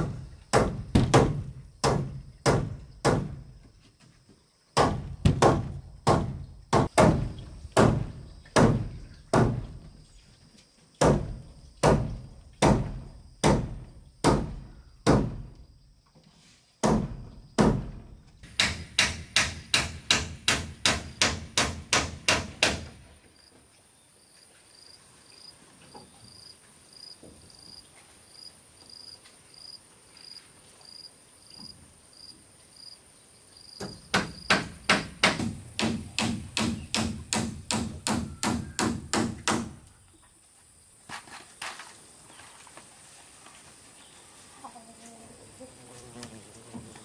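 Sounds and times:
hammer striking wood: 0.0 - 3.4, 4.8 - 9.7, 11.0 - 15.5, 16.8 - 23.0, 33.8 - 39.8.

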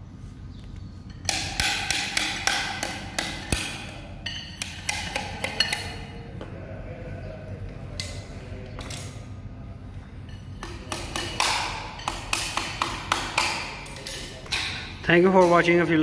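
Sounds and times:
hammer striking metal chisel: 1.1 - 6.2, 10.3 - 15.8.

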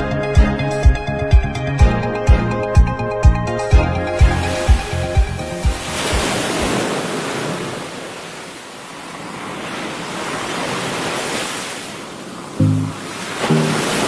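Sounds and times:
background music: 0.0 - 6.2, 12.6 - 14.0
waves breaking on beach: 4.1 - 14.0.

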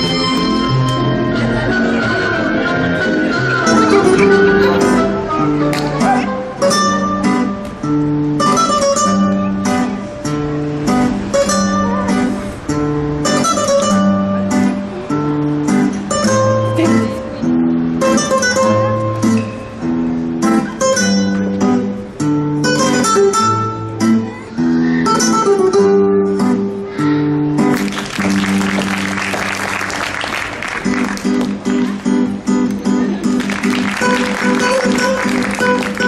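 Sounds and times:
strummed acoustic guitar music: 0.0 - 36.0.

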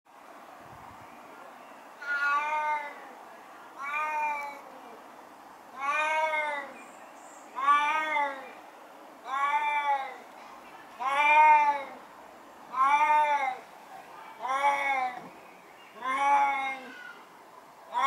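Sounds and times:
cat meowing loudly: 2.0 - 3.2, 3.8 - 4.8, 5.7 - 6.8, 7.6 - 8.5, 9.2 - 10.2, 11.0 - 12.0, 12.7 - 13.6, 14.4 - 15.2, 16.0 - 17.3.

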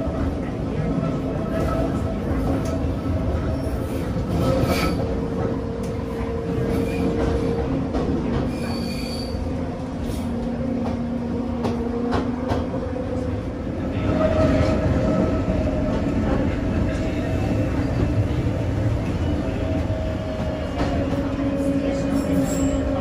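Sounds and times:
railcar running rumble: 0.0 - 23.0
wheel squeal: 8.5 - 9.5.

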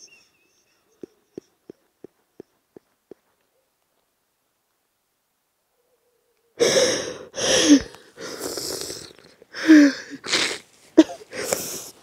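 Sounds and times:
breathy hissing vocal bursts: 8.2 - 9.2.

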